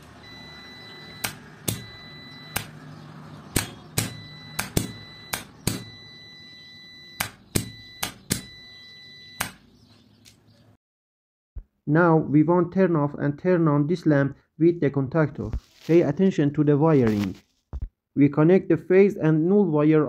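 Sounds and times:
multimeter high beep: 0.2 - 2.8, 3.6 - 9.6.

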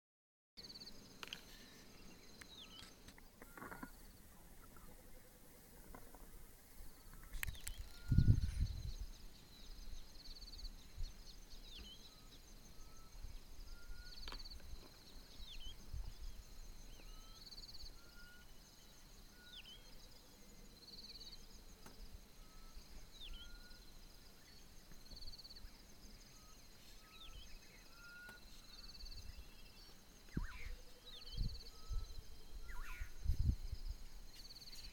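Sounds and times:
insects trilling: 0.6 - 34.9
birds whistling: 11.7 - 14.6, 16.9 - 18.5, 26.3 - 33.5.

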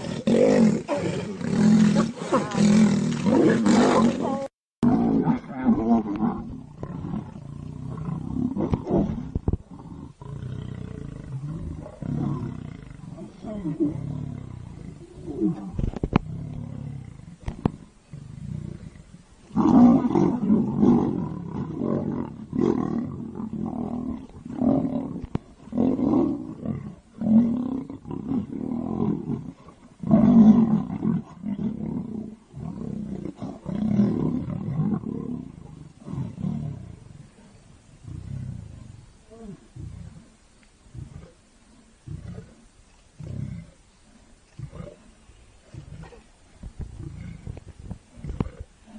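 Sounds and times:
lions growling and roaring: 0.0 - 48.9.

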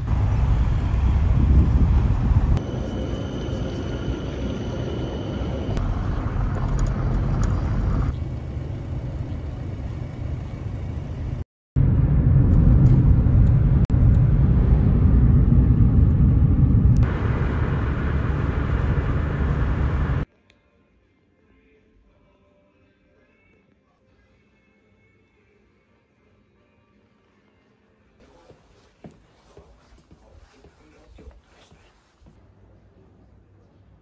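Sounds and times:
street traffic: 0.0 - 20.3.

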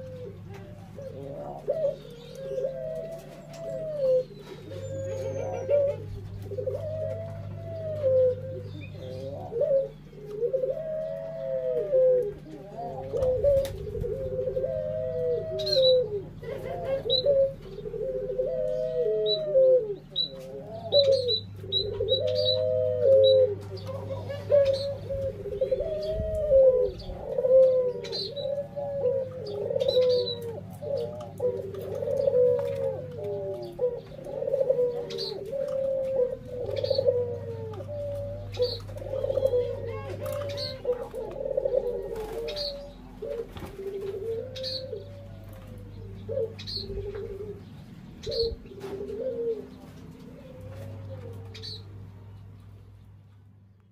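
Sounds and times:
doves cooing: 0.0 - 53.9
small birds chirping: 0.0 - 53.9.

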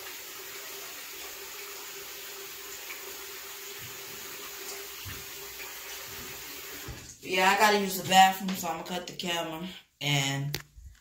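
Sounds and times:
tap running into sink: 6.0 - 7.1.

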